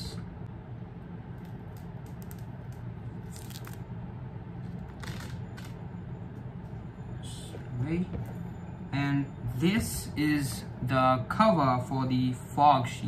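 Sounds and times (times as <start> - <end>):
low background hum: 0.0 - 13.0
plastic film peeling crackle: 1.4 - 3.8, 4.7 - 5.8.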